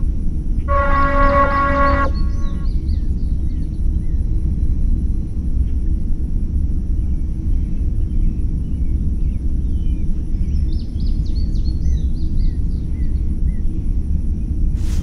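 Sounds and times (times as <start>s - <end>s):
steady low rumble: 0.0s - 15.0s
thin high tone: 0.7s - 2.7s
songbirds chirping: 0.7s - 4.2s.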